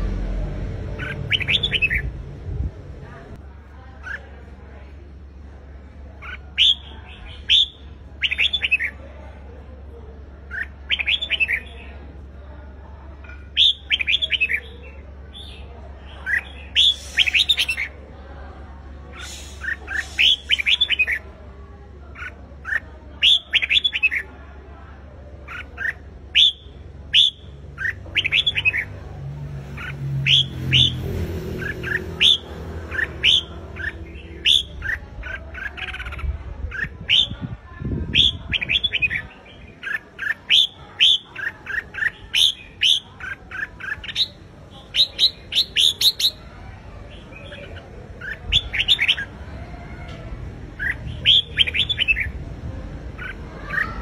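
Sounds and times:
low rumble: 0:00.0 - 0:03.4
bulbul singing: 0:00.7 - 0:02.3, 0:06.2 - 0:09.1, 0:10.3 - 0:12.2, 0:13.0 - 0:24.6, 0:25.2 - 0:49.4, 0:50.7 - 0:52.4.

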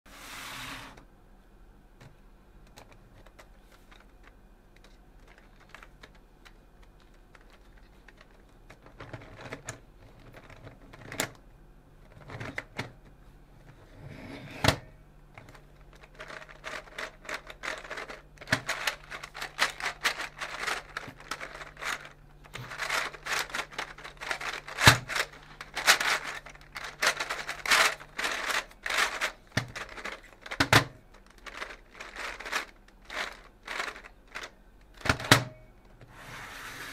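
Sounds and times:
plastic puzzle gears clicking: 0:02.7 - 0:11.4, 0:15.4 - 0:35.2.

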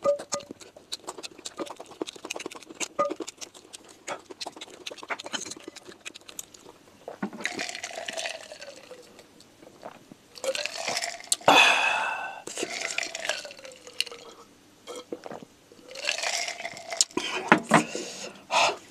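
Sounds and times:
man drinking in noisy gulps: 0:07.0 - 0:09.2, 0:09.8 - 0:18.9.

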